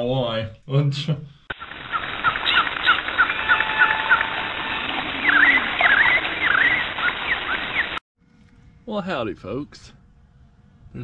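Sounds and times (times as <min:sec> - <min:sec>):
animal chirps: 0:01.6 - 0:04.3, 0:05.2 - 0:08.0
swooping animal calls: 0:01.6 - 0:08.0.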